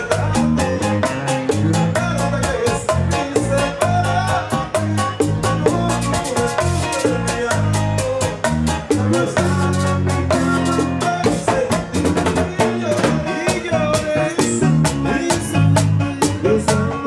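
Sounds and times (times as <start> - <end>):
acoustic guitars picking melody: 0.0 - 17.0
electric bass: 0.0 - 17.0
fast percussion beat: 0.0 - 17.0
keyboard: 0.0 - 17.0.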